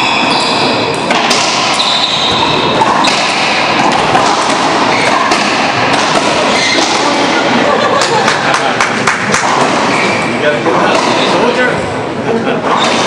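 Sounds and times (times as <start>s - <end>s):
ball cracking off racquets and walls: 1.0s - 7.4s, 8.3s - 10.2s.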